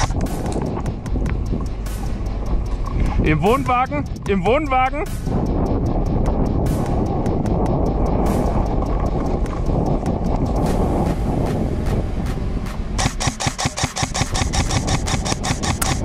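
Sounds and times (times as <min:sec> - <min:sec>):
wind rumbling on microphone: 0:00.0 - 0:16.0
rapid airsoft gun shots: 0:13.0 - 0:16.0.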